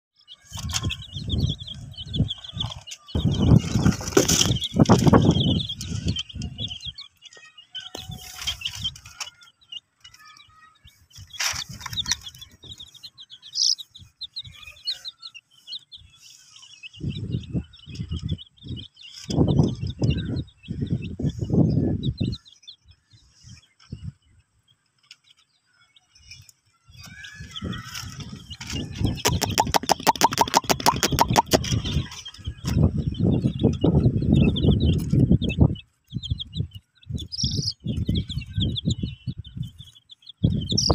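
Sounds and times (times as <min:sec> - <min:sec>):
baby chicks peeping: 0:00.2 - 0:40.9
bursts of low noise: 0:29.1 - 0:31.8.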